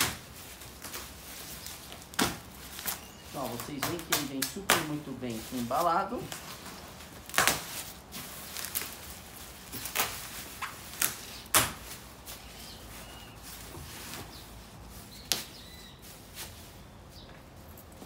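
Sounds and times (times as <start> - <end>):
sharp crackles: 0.0 - 14.2
plastic packaging crinkling: 0.0 - 16.6.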